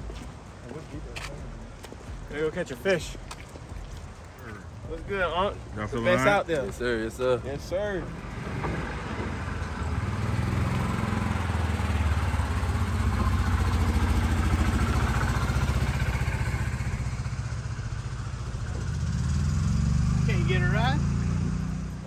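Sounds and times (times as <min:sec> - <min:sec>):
golf cart engine running: 0:03.0 - 0:22.0.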